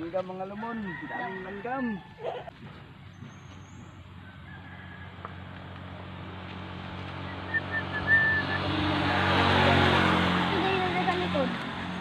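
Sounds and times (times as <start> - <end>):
vehicle engine and tyre noise: 2.5 - 12.0.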